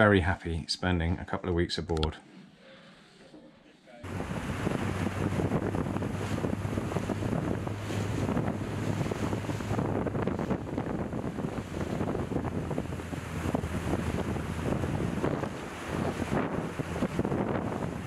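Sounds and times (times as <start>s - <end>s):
low hum: 4.0s - 17.1s
choppy sea rushing: 4.0s - 18.0s
wind buffeting microphone: 4.0s - 18.0s.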